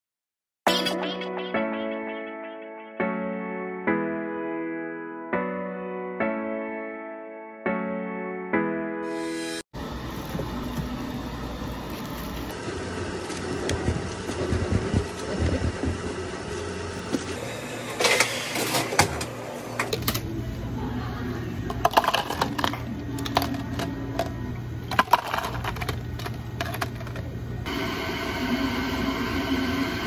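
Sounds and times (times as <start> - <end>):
low hum of cafe equipment: 9.8 - 27.7
ice cubes clinking into cups: 21.7 - 24.3, 24.9 - 27.2.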